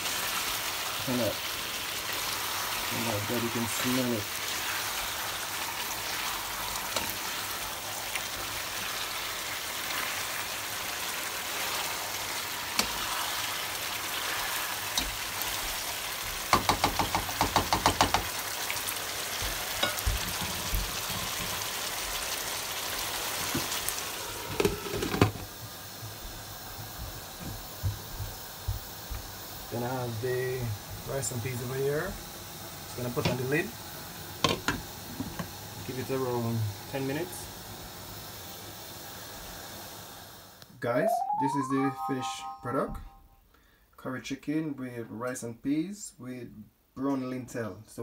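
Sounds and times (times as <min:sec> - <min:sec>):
curry sizzling in a frying pan: 0:00.0 - 0:40.6
spatula knocking against pan: 0:16.5 - 0:18.3.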